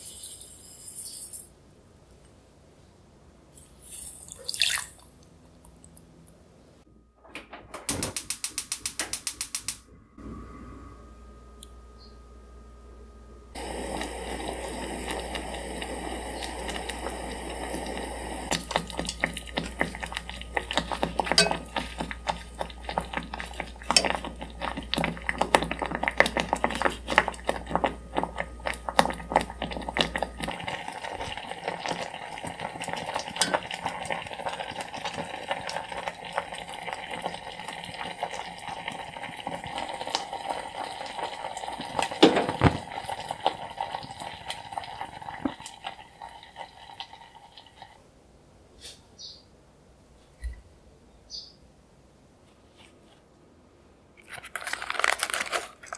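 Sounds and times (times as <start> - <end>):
steady hiss: 0.0 - 1.6, 13.5 - 32.6
syrup bubbling and popping: 13.5 - 48.0.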